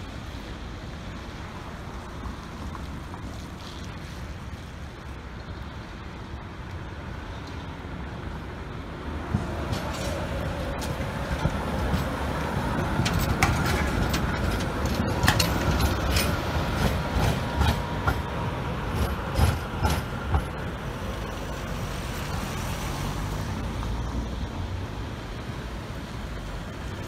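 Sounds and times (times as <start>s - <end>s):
tram running gear rumble: 0.0s - 27.0s
wheels clacking over track joints: 9.2s - 21.0s.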